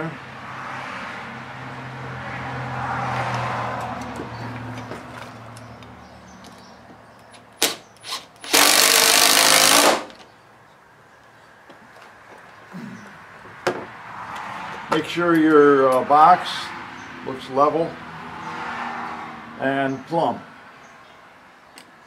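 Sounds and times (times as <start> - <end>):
cordless drill driving screw: 7.6 - 10.2.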